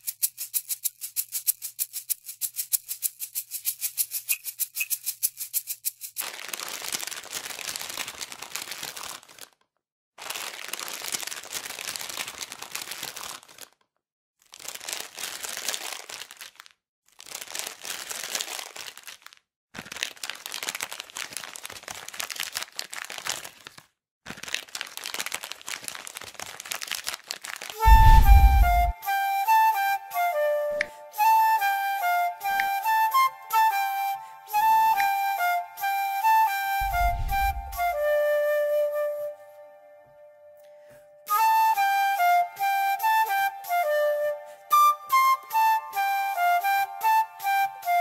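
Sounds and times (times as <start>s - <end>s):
chip bag crinkling: 6.2s - 9.6s, 10.2s - 13.8s, 14.4s - 27.9s
loud low thump: 27.9s - 28.9s, 36.8s - 37.8s.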